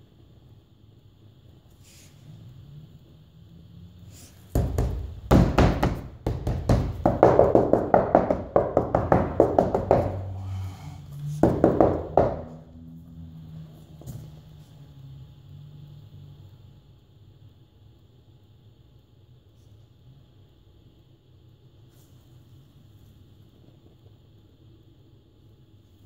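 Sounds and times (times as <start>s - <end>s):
hand tapping on laminate flooring: 4.6s - 10.6s, 11.4s - 12.6s.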